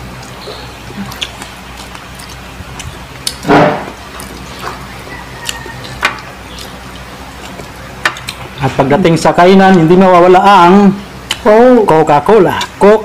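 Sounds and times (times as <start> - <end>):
wet chewing and lip smacks: 0.0 - 8.5, 11.2 - 11.5, 12.5 - 12.8.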